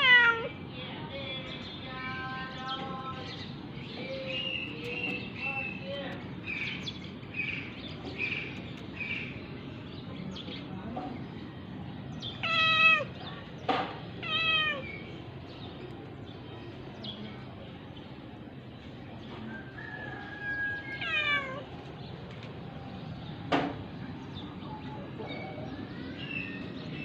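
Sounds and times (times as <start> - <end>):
cat meowing: 0.0 - 0.6, 12.3 - 13.2, 14.2 - 15.0, 20.6 - 21.7.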